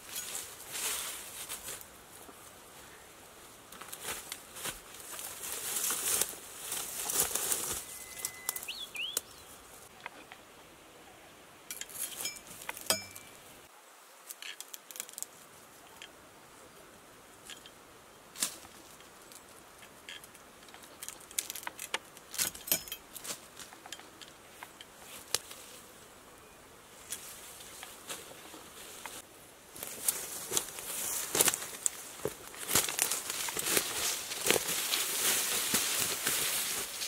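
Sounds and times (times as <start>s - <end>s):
bamboo rustling: 0.0s - 10.5s, 11.7s - 16.2s, 17.4s - 37.0s
bird chirps: 7.8s - 9.6s.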